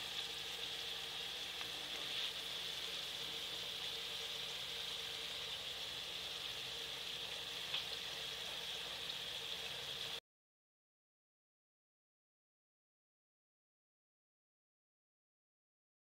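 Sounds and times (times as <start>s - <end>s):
potato slices sizzling in oil: 0.0s - 10.2s
small tick: 7.7s - 7.9s.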